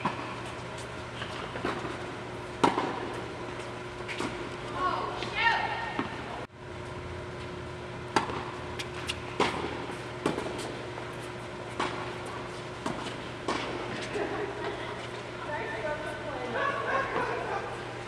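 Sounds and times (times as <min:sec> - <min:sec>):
tennis balls hit by rackets: 0:00.0 - 0:00.5, 0:01.2 - 0:06.4, 0:08.1 - 0:11.1, 0:11.7 - 0:14.8
steady background hum: 0:00.0 - 0:18.0
balls bouncing on hard court: 0:02.6 - 0:03.3, 0:05.1 - 0:06.4.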